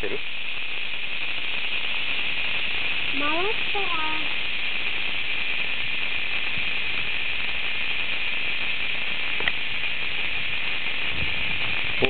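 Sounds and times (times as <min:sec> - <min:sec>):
cicadas buzzing: 0:00.0 - 0:06.4.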